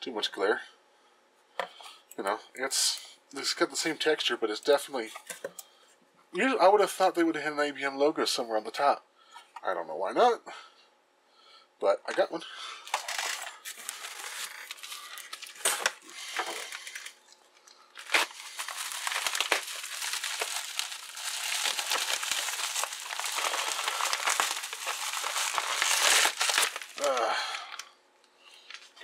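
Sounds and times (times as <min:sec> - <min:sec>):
plastic wrap crinkling: 0:12.8 - 0:27.9, 0:28.5 - 0:29.0.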